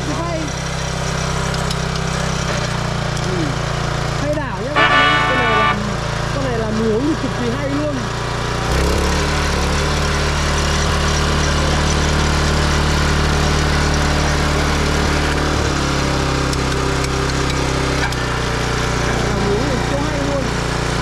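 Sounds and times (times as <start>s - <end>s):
small engine running: 0.0s - 21.0s.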